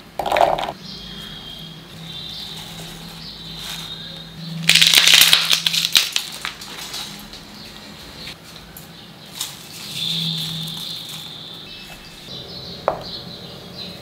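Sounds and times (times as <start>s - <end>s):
herbs clattering into steel jar: 4.7s - 7.4s.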